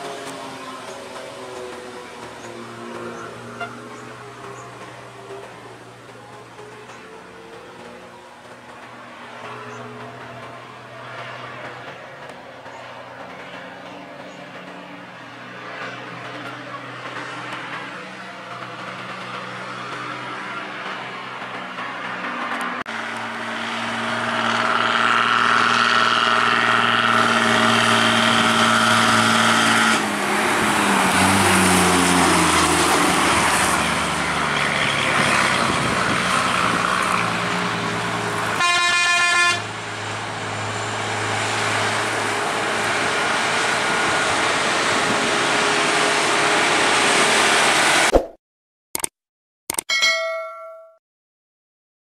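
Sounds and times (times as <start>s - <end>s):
heavy diesel engines labouring: 0.0s - 48.1s
vehicle horn blast: 3.5s - 3.9s, 38.6s - 39.6s.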